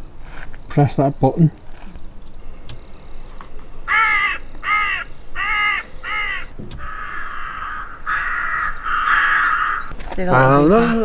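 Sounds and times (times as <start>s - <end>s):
harsh bird call: 3.2s - 9.9s
recorded crow caws from loudspeaker: 3.9s - 9.9s.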